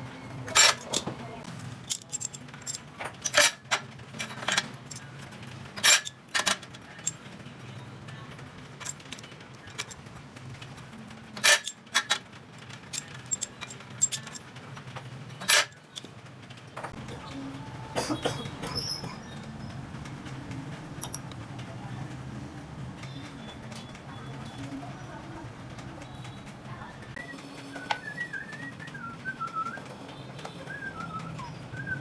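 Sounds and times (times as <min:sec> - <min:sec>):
metal tools clinking: 0:00.5 - 0:01.1, 0:01.9 - 0:07.2, 0:08.8 - 0:10.0, 0:11.4 - 0:12.2, 0:12.8 - 0:14.5, 0:21.0 - 0:21.4.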